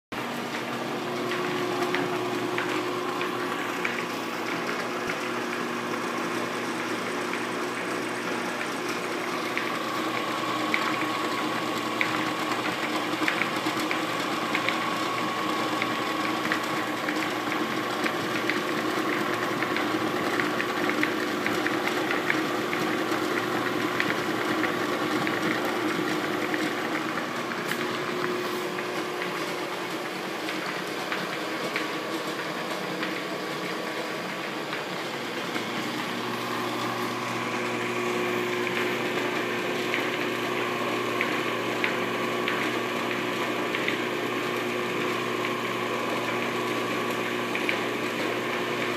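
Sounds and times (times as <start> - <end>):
electric motor humming: 34.2 - 48.8.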